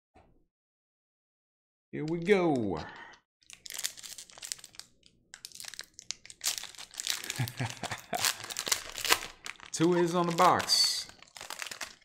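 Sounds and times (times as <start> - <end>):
foil wrapper crinkling and tearing: 3.4 - 12.0.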